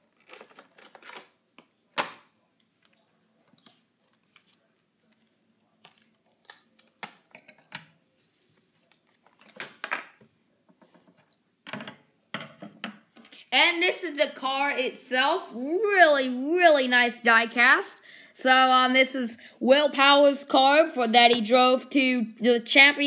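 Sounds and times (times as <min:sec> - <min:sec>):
card handling taps and rustles: 0:08.8 - 0:11.8.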